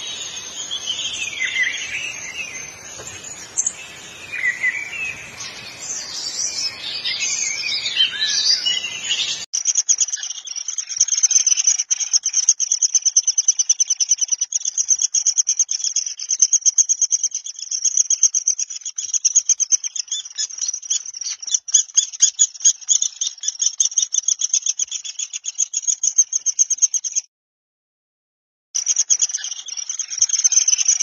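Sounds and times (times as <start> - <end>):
insect trill: 9.6 - 27.2, 28.8 - 31.0.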